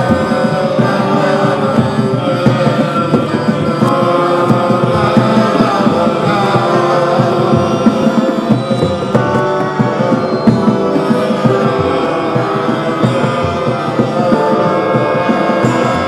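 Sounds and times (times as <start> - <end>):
droning pitched tones: 0.0 - 16.0.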